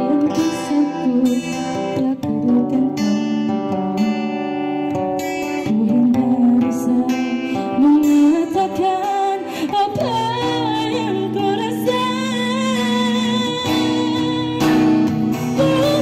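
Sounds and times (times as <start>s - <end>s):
acoustic guitar: 0.0s - 16.0s.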